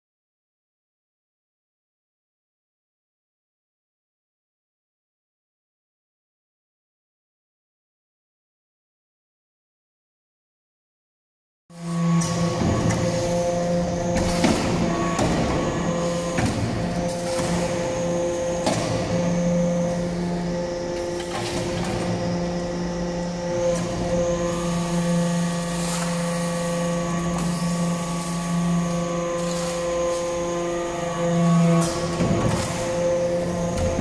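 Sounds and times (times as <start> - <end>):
hydraulic pump humming: 11.8 - 34.0.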